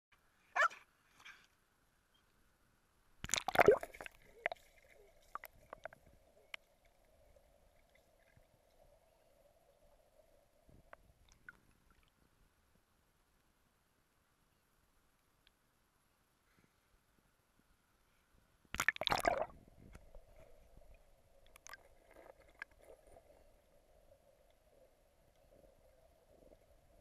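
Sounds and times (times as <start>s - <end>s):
faint steady hum: 0.1s - 27.0s
loud splash: 3.2s - 4.1s, 18.8s - 19.5s
bubble pops: 3.2s - 4.6s, 18.8s - 19.5s
river water splashing and gurgling: 3.2s - 5.8s, 18.8s - 19.5s.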